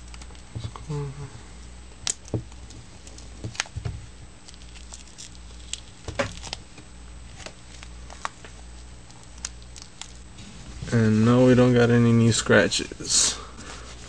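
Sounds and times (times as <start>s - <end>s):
low steady hum: 0.0s - 14.0s
protective film peeling: 2.0s - 10.6s.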